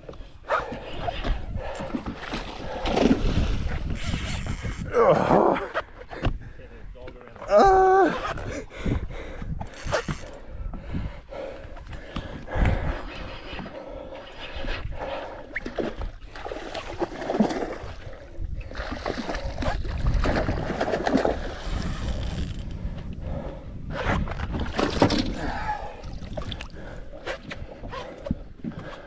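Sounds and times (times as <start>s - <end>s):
wind rumble on microphone: 0.0s - 29.0s
water splashing against boat: 15.4s - 22.7s, 24.2s - 29.0s.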